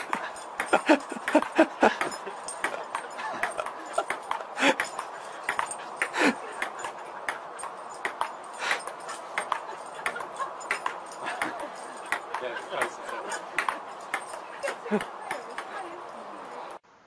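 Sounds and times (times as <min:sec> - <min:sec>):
table tennis ball clicking: 0:01.2 - 0:03.0, 0:08.0 - 0:12.9.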